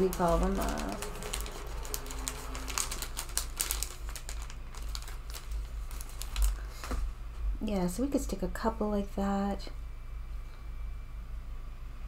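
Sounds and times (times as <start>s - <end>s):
paper pieces clicking and rustling: 0.0s - 6.8s
steady low hum: 0.0s - 12.0s.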